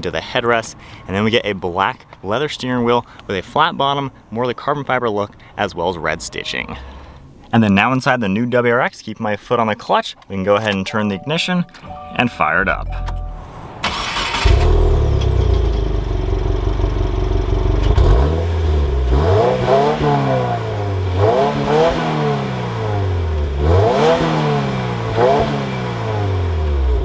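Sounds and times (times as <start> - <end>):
car engine idling: 12.9 - 19.3
car engine revving: 13.4 - 27.0.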